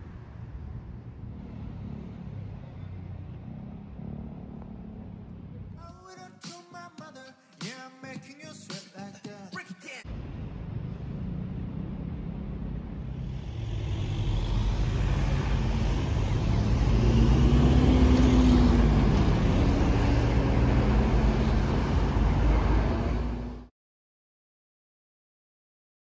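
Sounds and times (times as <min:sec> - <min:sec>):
cars and buses driving past: 0:00.0 - 0:05.8, 0:10.1 - 0:23.7.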